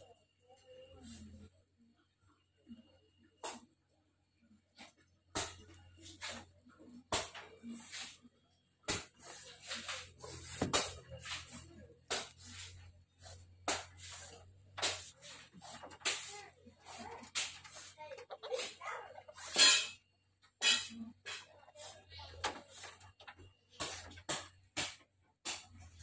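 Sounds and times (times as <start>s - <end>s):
civet hissing: 9.2s - 19.9s.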